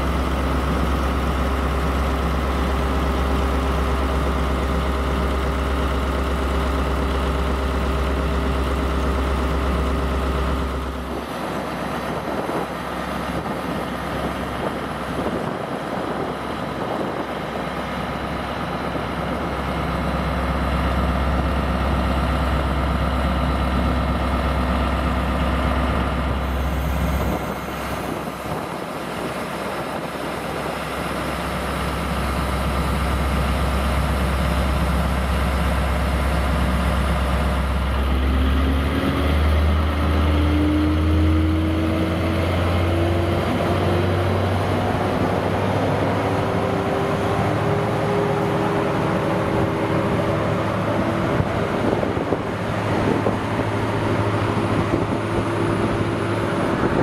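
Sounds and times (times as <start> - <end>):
diesel locomotive engine idling: 0.0 - 57.0.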